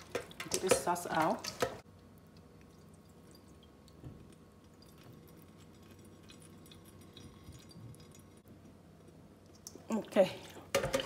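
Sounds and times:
liquid trickling into sink drain: 2.0s - 8.5s.

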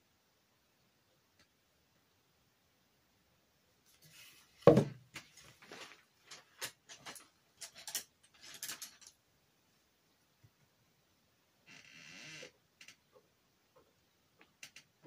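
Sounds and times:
thump on tabletop: 4.7s - 5.0s.

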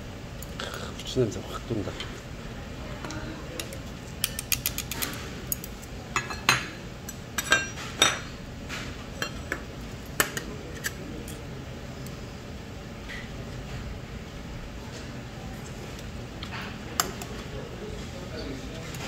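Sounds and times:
metal tableware clinking on dishes: 6.2s - 8.4s.

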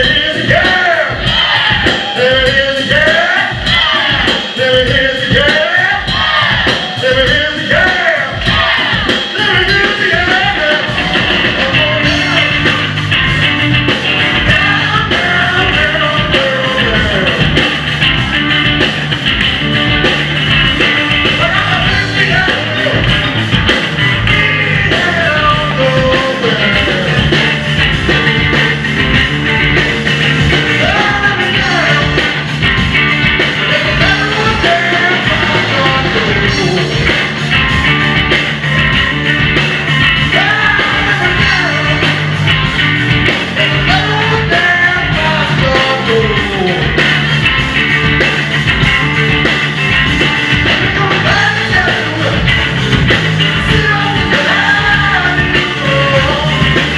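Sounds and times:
distorted electric guitar: 0.0s - 56.9s
drum kit: 0.0s - 56.9s
electric bass: 0.0s - 56.9s
person singing: 14.3s - 17.6s, 21.3s - 23.2s, 24.4s - 27.6s, 30.6s - 32.4s, 33.6s - 37.3s, 40.2s - 42.3s, 43.5s - 47.2s, 50.6s - 52.5s, 53.4s - 56.9s.

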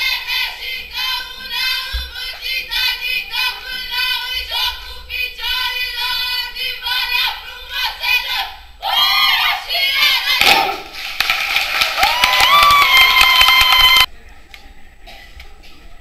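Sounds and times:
high voices singing together: 0.0s - 10.8s.

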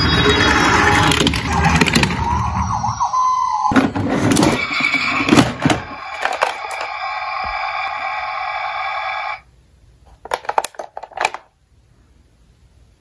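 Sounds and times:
toy siren wailing: 0.0s - 9.4s
toy rolling on wooden board: 3.7s - 8.5s
plastic toys clattering in box: 10.2s - 11.5s.

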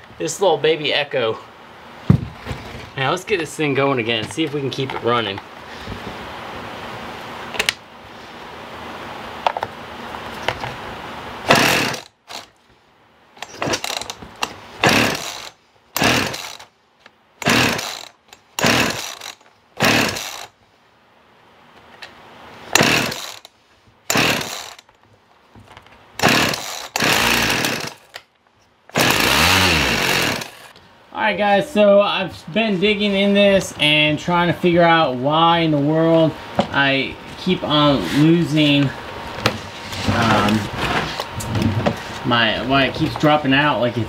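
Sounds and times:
chainsaw pull-starting: 11.5s - 12.5s, 13.4s - 16.7s, 17.4s - 20.6s, 22.7s - 24.9s, 26.2s - 28.2s, 28.9s - 30.7s
chainsaw running unsteadily: 11.5s - 12.5s, 13.6s - 14.2s, 14.8s - 16.7s, 17.4s - 20.5s, 22.7s - 23.5s, 24.1s - 24.8s, 26.2s - 28.1s, 28.9s - 30.7s.

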